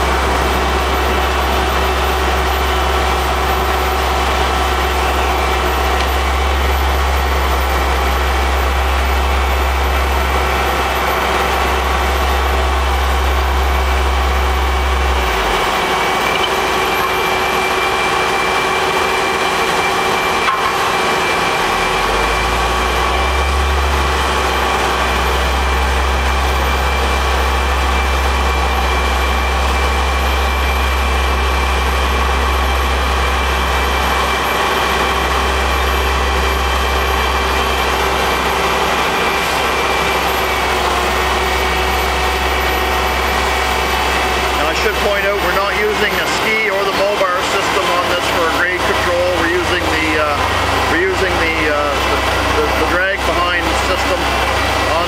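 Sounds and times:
heavy diesel machinery running: 0.0 - 55.0.

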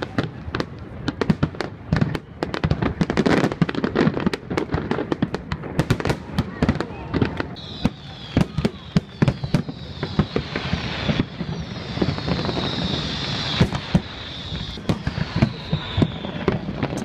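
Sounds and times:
firework shells bursting: 7.6 - 17.0
steady high hiss: 7.6 - 17.0.

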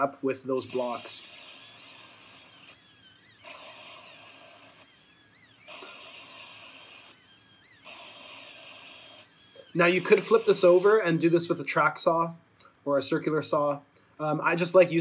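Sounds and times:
electric planer cutting wood: 0.6 - 11.5.

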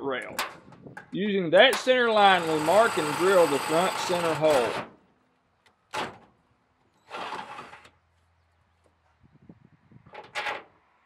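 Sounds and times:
cordless drill drilling metal: 1.8 - 4.9.

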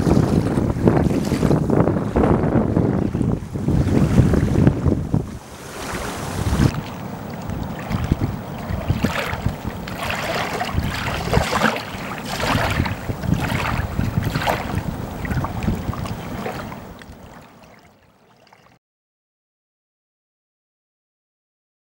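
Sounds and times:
wind buffeting microphone: 0.0 - 17.4
small waves lapping on shore: 0.0 - 18.8.

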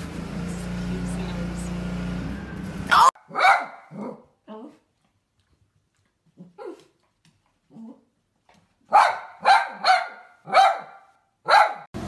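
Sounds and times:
small dog barking: 2.9 - 4.3, 8.9 - 11.9.

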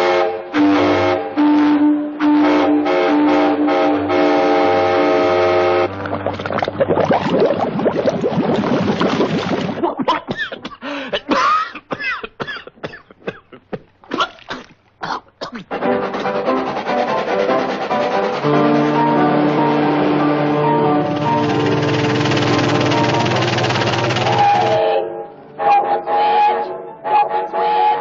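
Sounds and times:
cartoon steam-train whistle: 0.0 - 5.9, 15.8 - 26.6
busy cartoon music: 15.7 - 28.0
sliding whistle-like tones: 15.8 - 26.6.

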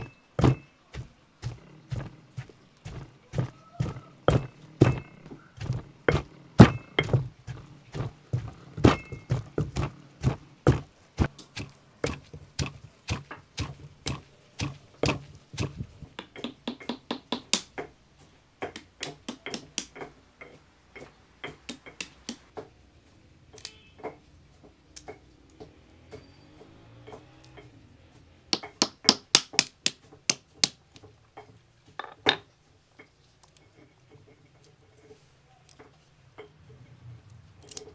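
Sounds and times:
pestle pounding in stone mortar: 0.0 - 22.6, 28.5 - 34.3.

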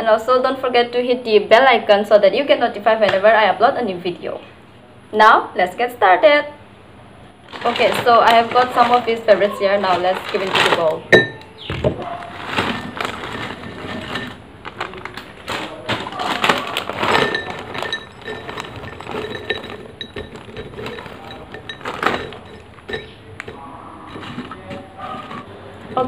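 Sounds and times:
plastic packets crinkling: 7.4 - 26.0
chips rattling into glass bowls: 7.5 - 26.0.

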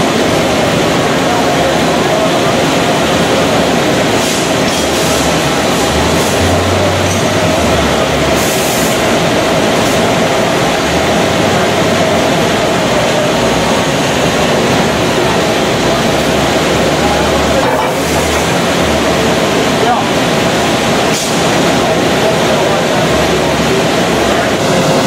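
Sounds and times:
machinery noise with steady tone: 0.0 - 25.0.

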